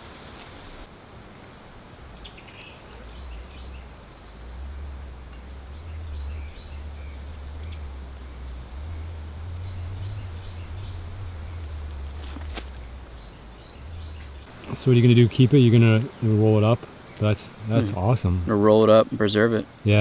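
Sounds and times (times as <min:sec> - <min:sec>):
bird chirps: 0:02.2 - 0:14.5
low rumble: 0:03.0 - 0:14.5
high-pitched insect drone: 0:03.1 - 0:14.5.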